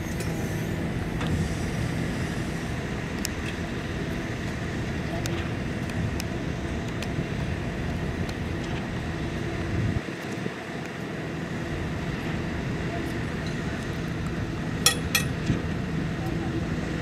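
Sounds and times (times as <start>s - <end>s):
diesel engine running: 0.0s - 17.0s
sharp metallic clanks: 14.8s - 15.4s.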